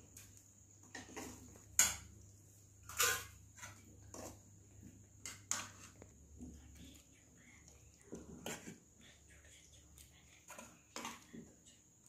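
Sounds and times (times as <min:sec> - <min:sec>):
steel ladle clinking and scraping: 0:02.8 - 0:04.4.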